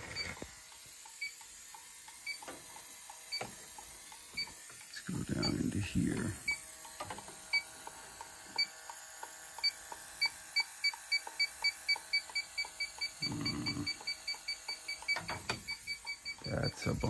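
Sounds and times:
leak detector beeping: 0:00.0 - 0:00.5, 0:01.1 - 0:01.5, 0:02.1 - 0:02.5, 0:03.2 - 0:04.6, 0:05.3 - 0:06.7, 0:07.5 - 0:07.7, 0:08.5 - 0:08.8, 0:09.6 - 0:17.0.

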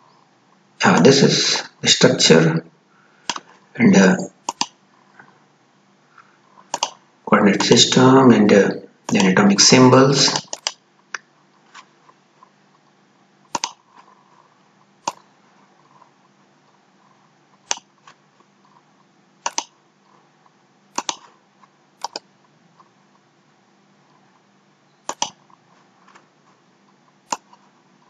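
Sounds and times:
computer mouse clicking: 0:03.2 - 0:03.5, 0:04.4 - 0:04.8, 0:06.7 - 0:07.0, 0:09.1 - 0:09.4, 0:10.3 - 0:11.8, 0:13.5 - 0:14.1, 0:15.0 - 0:15.3, 0:17.6 - 0:18.2, 0:19.4 - 0:19.8, 0:20.9 - 0:21.3, 0:22.0 - 0:22.9, 0:25.0 - 0:26.2, 0:27.2 - 0:27.6.

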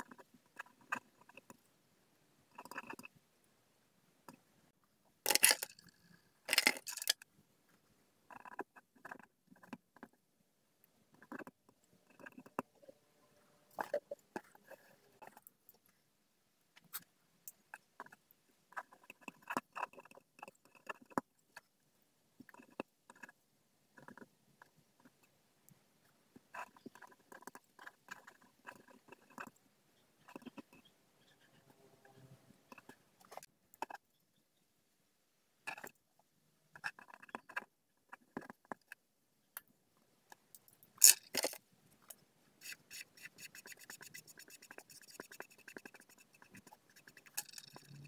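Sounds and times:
pen scratching on paper: 0:17.7 - 0:21.2, 0:22.4 - 0:23.4, 0:26.4 - 0:29.6, 0:30.2 - 0:34.0, 0:36.7 - 0:38.6, 0:42.6 - 0:48.0.

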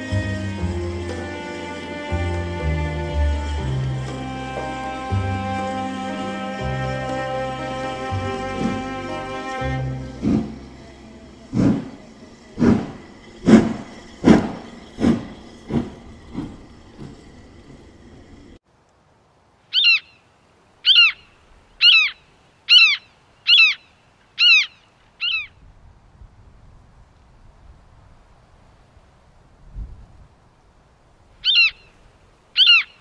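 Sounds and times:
bird calls: 0:19.7 - 0:20.2, 0:20.8 - 0:25.6, 0:31.4 - 0:33.0.

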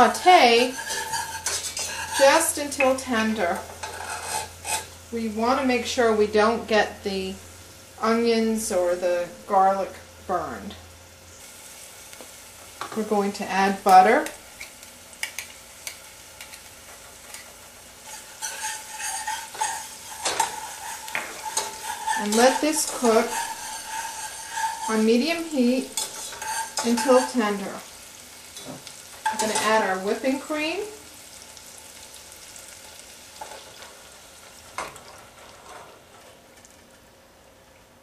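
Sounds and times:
butter sizzling in a saucepan: 0:00.0 - 0:38.0
whisk clicking against pan: 0:18.1 - 0:24.9.

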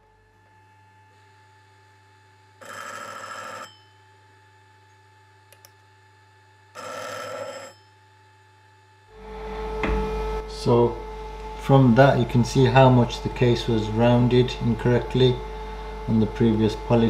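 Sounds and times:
machine low hum: 0:00.0 - 0:17.0
telephone ringing: 0:02.6 - 0:03.9, 0:06.8 - 0:07.8.

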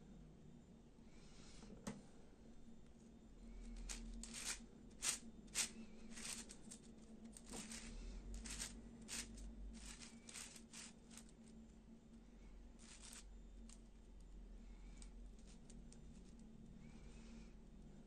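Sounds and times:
plastic puzzle clicking and scraping: 0:03.8 - 0:11.5, 0:12.8 - 0:13.8.

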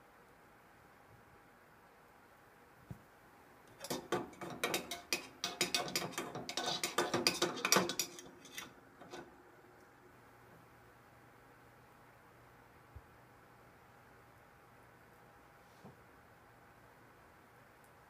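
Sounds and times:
stirrer clinking in metal can: 0:03.8 - 0:09.2.

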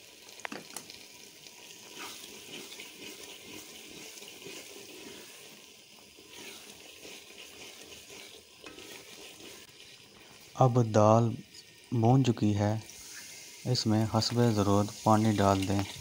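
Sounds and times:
food sizzling in hot oil: 0:00.0 - 0:16.0
wooden spoon stirring pot: 0:01.8 - 0:10.6, 0:14.2 - 0:16.0.

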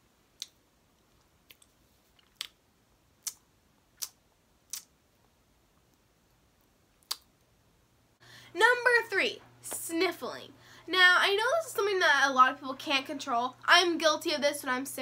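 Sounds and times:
wet mouth smacking: 0:01.5 - 0:02.6, 0:03.2 - 0:03.4, 0:04.0 - 0:04.9, 0:07.0 - 0:07.3.

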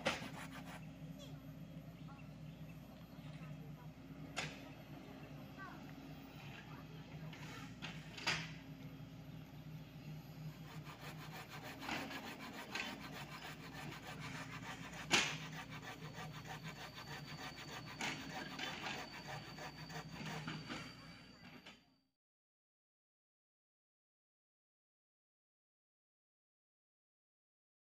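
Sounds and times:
thin high whine: 0:14.6 - 0:21.9.

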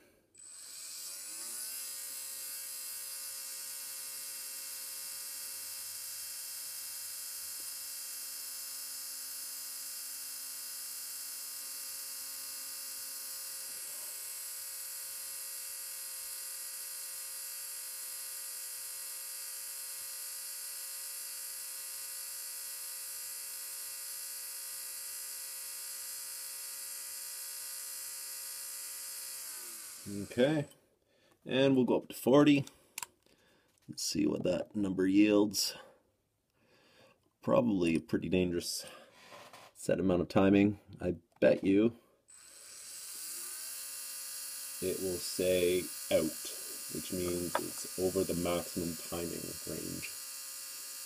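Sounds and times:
electric motor whine: 0:00.4 - 0:30.6, 0:42.3 - 0:51.0.

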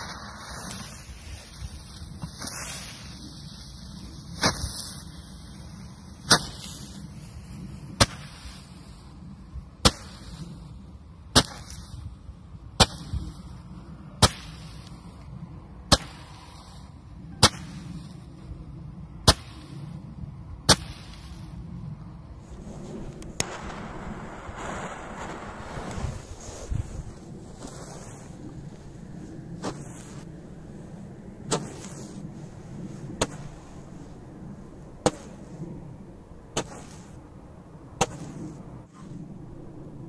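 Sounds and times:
roman candle firework pops: 0:22.9 - 0:26.3.

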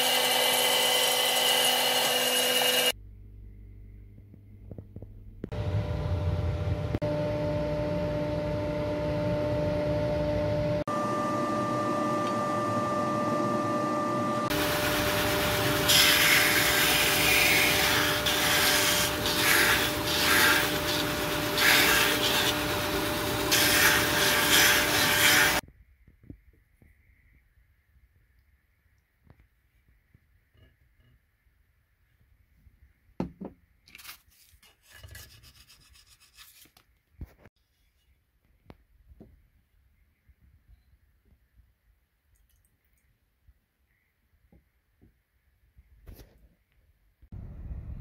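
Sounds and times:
wood rasping on sanding belt: 0:14.6 - 0:25.6.

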